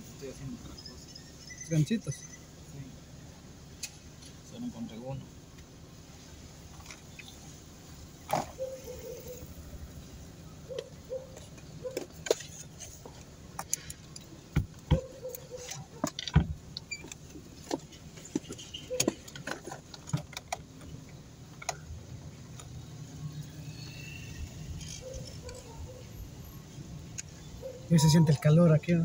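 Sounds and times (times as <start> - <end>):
clicks and knocks of handling: 10.8 - 21.9.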